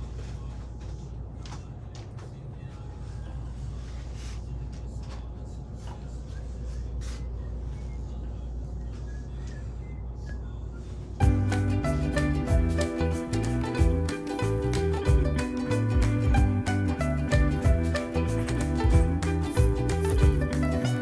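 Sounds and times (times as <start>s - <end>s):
background music: 11.2s - 21.0s.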